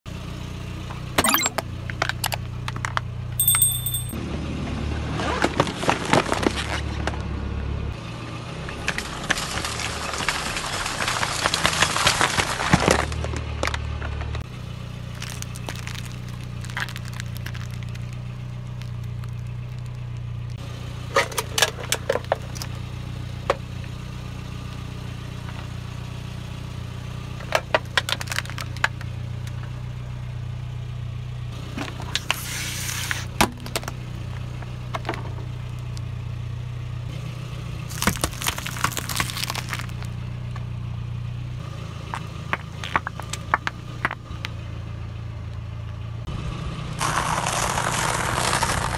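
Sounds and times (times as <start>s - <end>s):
tire crushing packaged items: 9.0s - 22.8s, 27.4s - 29.6s, 37.8s - 40.7s, 42.0s - 44.4s, 47.0s - 48.9s
car engine idling: 13.5s - 46.9s.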